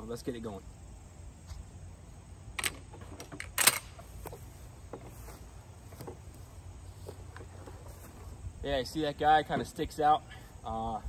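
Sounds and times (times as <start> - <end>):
shotgun gear handling clicks: 2.6 - 4.4.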